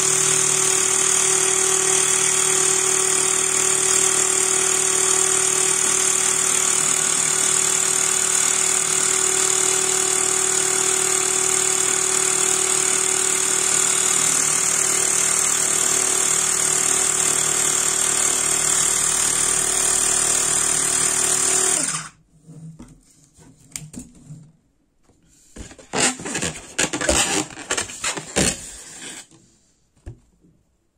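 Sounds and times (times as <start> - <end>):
air compressor running: 0.0 - 22.2
rubber balloon squeaking: 25.6 - 29.2.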